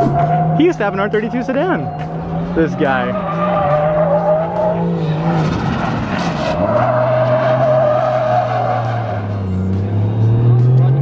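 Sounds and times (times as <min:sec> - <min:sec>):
car engine at high revs: 0:00.0 - 0:11.0
tyres squealing: 0:06.5 - 0:09.4.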